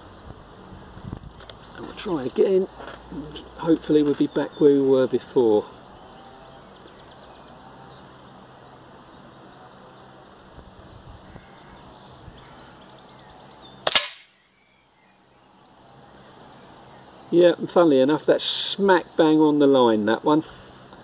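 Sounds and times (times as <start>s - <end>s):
faint outdoor background: 0.0s - 21.0s
air rifle shot: 13.8s - 14.4s.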